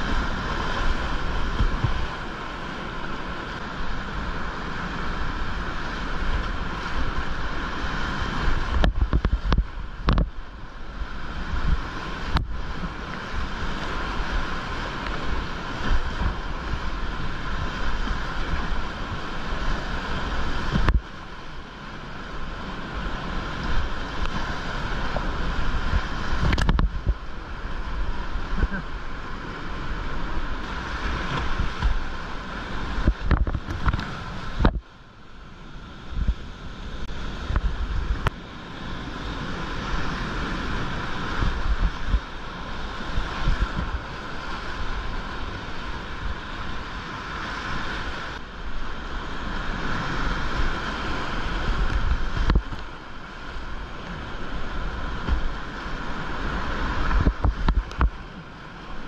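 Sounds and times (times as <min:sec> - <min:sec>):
wind buffeting microphone: 0:00.0 - 0:34.9, 0:36.0 - 0:59.0
water splashing: 0:00.0 - 0:35.1
rapids rushing: 0:00.0 - 0:59.0.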